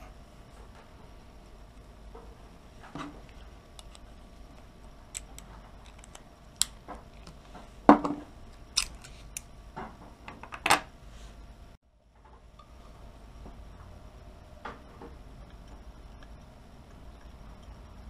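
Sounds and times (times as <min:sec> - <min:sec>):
magnet plates clicking together: 0:03.8 - 0:07.4, 0:08.6 - 0:09.5.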